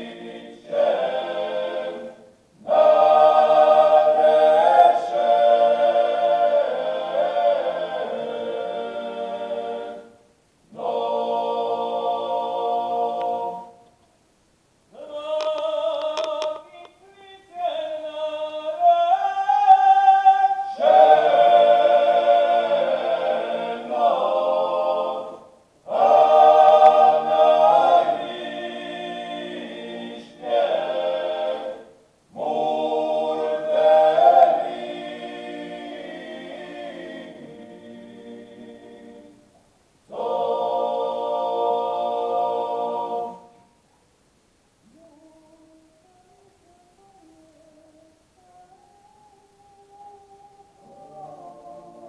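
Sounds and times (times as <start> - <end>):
male choir singing a cappella: 0.0 - 13.8, 14.9 - 43.7, 44.8 - 52.0.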